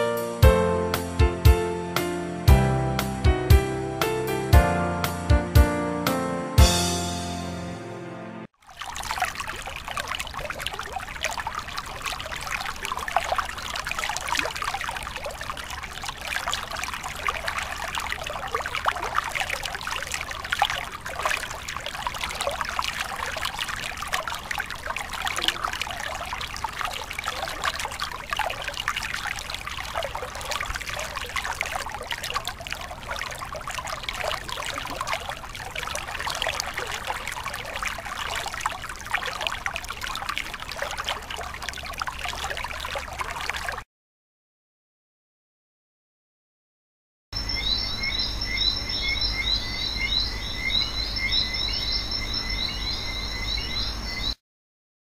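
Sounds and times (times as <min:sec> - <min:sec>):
stream rushing over rocks: 0:08.7 - 0:43.3.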